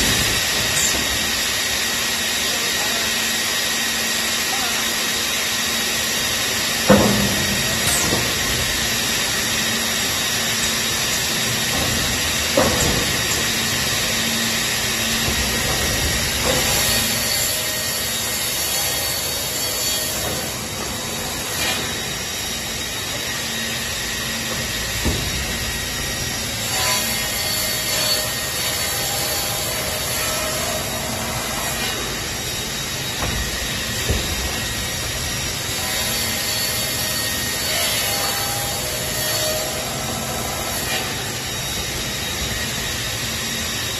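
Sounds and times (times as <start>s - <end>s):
panel saw cutting wood: 4.8s - 41.8s
sharp machine knocks: 6.8s - 19.1s, 24.4s - 29.7s, 30.4s - 36.9s.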